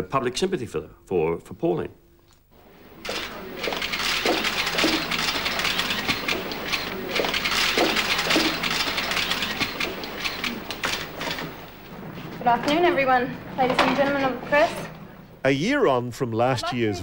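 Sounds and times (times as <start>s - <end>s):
shuffling: 2.6s - 15.4s
camera shutters clicking: 3.0s - 11.6s.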